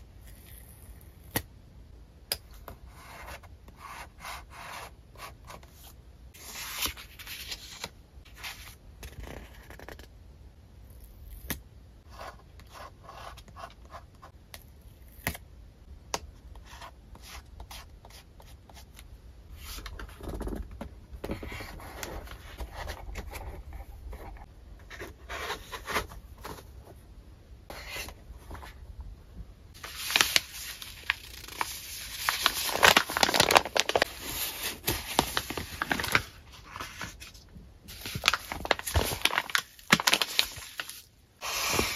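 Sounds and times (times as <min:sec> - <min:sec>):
paper bag crinkling: 0:29.8 - 0:36.3, 0:37.9 - 0:41.0
paper and packaging rustling: 0:29.8 - 0:41.9.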